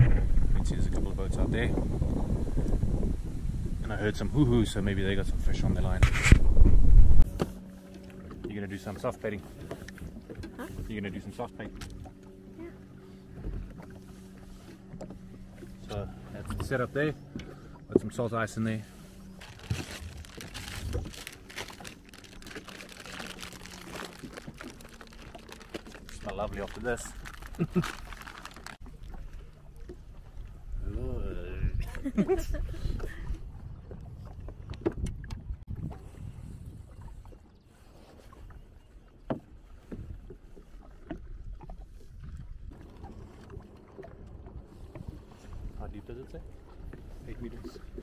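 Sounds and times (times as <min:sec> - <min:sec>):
water lapping against hull: 0:00.0 - 0:48.0
plastic bag crinkling: 0:19.4 - 0:28.8.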